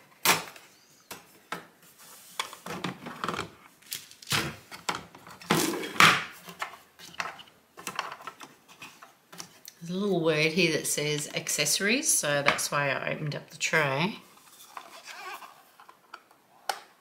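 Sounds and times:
plastic and metal tray clattering: 0:02.4 - 0:09.0.

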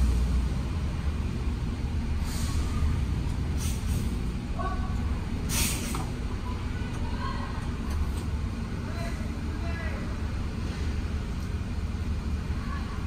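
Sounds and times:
truck engine rumbling: 0:00.0 - 0:13.0
air brake hisses: 0:02.2 - 0:02.9, 0:03.5 - 0:04.2, 0:05.5 - 0:06.1.

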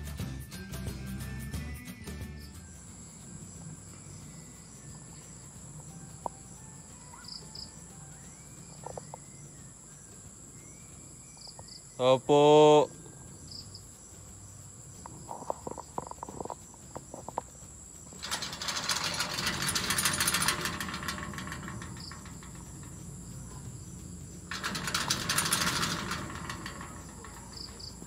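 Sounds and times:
metal gate rattling: 0:02.5 - 0:09.6, 0:15.1 - 0:28.0.

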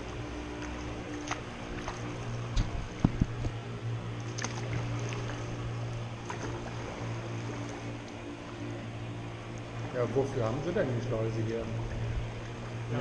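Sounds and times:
paddle strokes: 0:00.0 - 0:10.0
steady low hum: 0:00.0 - 0:13.0
water lapping: 0:00.0 - 0:13.0.

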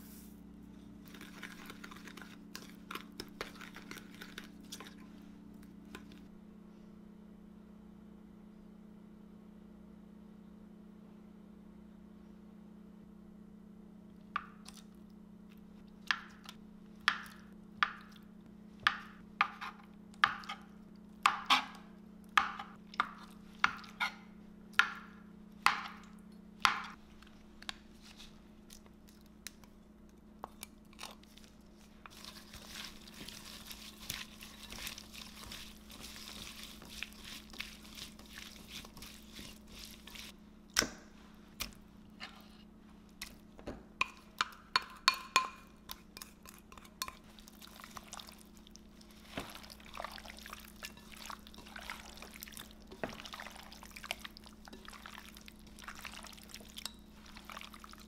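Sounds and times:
vegetables tossed in glass bowl: 0:32.1 - 0:40.3.

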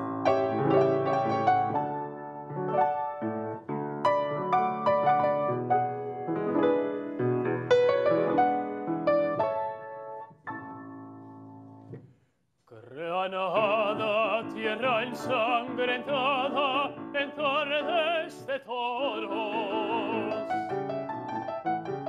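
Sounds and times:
grand piano: 0:00.0 - 0:12.1, 0:13.1 - 0:22.0
tenor singing operatically: 0:12.8 - 0:20.6.

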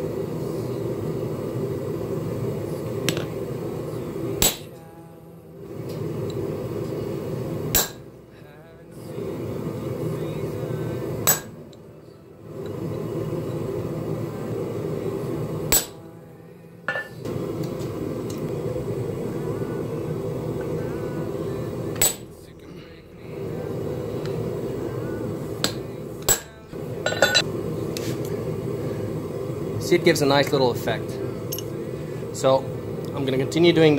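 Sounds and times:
steady low hum: 0:00.0 - 0:33.9
hammer striking metal punch: 0:04.4 - 0:04.7, 0:07.7 - 0:08.0, 0:11.2 - 0:11.6, 0:15.7 - 0:16.0, 0:22.0 - 0:22.3, 0:25.6 - 0:27.4.

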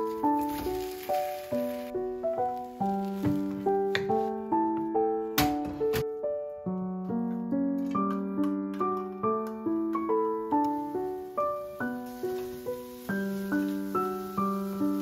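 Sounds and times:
gentle piano melody: 0:00.0 - 0:15.0.

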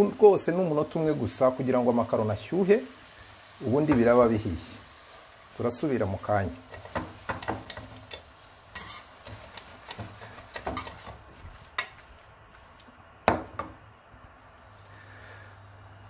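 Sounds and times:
light sizzle: 0:00.0 - 0:16.0
metal tongs clicking against pan: 0:06.7 - 0:11.1.

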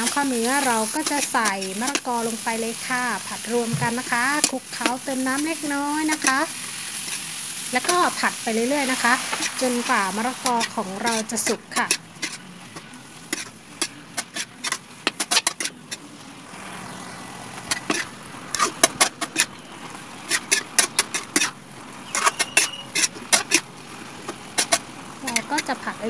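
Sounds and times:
metal ladle scraping a wok: 0:00.0 - 0:16.0, 0:20.2 - 0:23.7.

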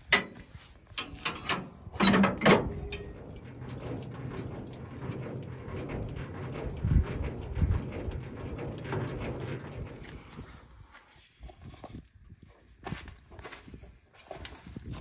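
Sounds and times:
metal crank handle clanking: 0:00.0 - 0:10.4
low metal rattle: 0:00.0 - 0:10.9.

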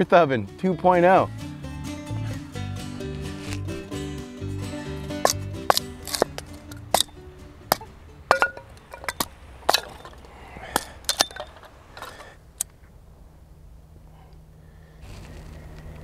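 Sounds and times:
background music: 0:00.0 - 0:10.1
hatchet splitting kindling: 0:05.2 - 0:12.4.

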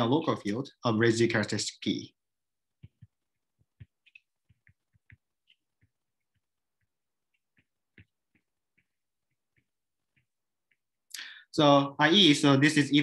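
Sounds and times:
stylus tapping on glass screen: 0:02.7 - 0:11.0.

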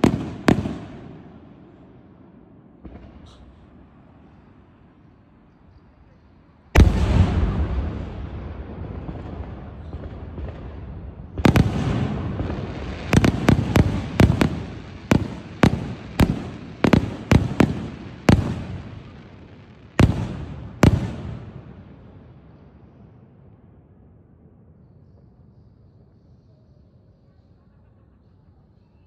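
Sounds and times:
firework shells bursting: 0:11.4 - 0:19.2.

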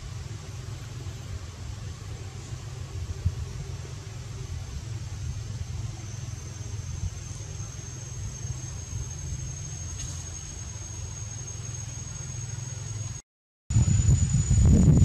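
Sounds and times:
high whine of insects: 0:00.0 - 0:15.0.

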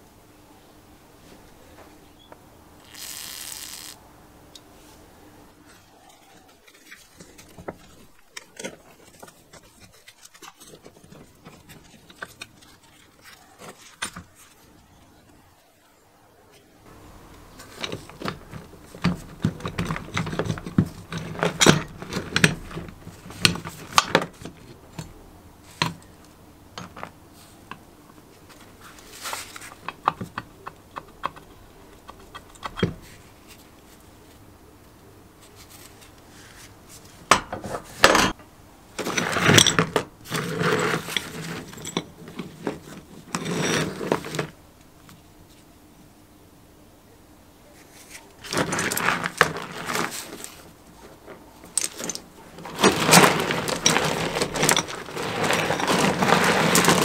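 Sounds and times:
metal parts clinking and rattling: 0:39.0 - 0:44.5, 0:48.4 - 0:57.0.

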